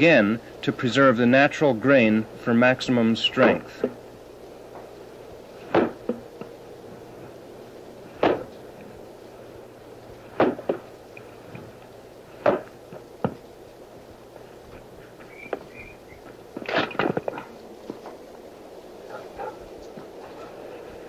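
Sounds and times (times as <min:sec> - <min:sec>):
maul striking wooden wedges: 0:05.6 - 0:06.3, 0:08.1 - 0:08.6, 0:10.3 - 0:10.9, 0:12.4 - 0:13.4.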